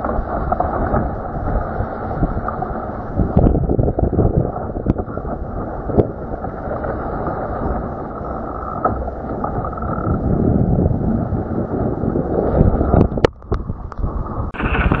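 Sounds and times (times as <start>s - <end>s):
water splashing against hull: 0.0s - 15.0s
wind buffeting microphone: 0.0s - 15.0s.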